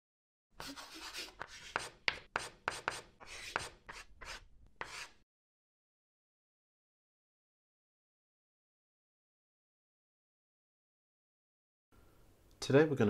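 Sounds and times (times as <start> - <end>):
chalk scratching on blackboard: 0.6 - 5.2.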